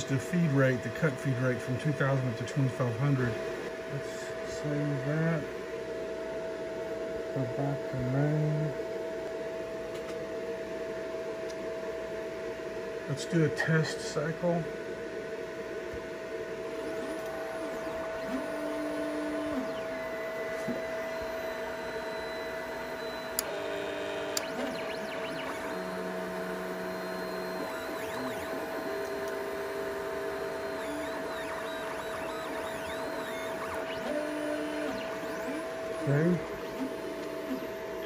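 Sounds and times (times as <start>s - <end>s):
steady hum: 0.0s - 38.0s
stepper motors whining: 16.6s - 38.0s.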